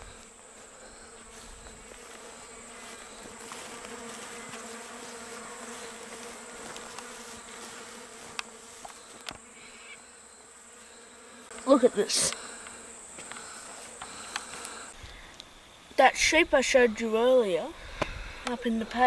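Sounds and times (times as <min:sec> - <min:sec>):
insects buzzing: 0:00.0 - 0:19.0
faint clicks: 0:14.0 - 0:15.5.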